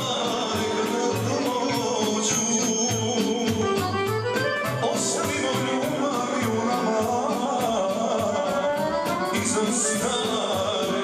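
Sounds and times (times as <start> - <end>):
folk band with accordion and keyboard: 0.0 - 11.0
person singing: 0.0 - 11.0.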